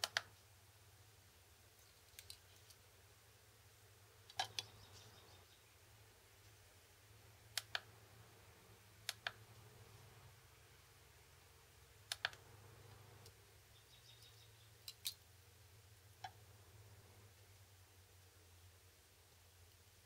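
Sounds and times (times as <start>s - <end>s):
scale buttons clicking: 9.1s - 9.4s.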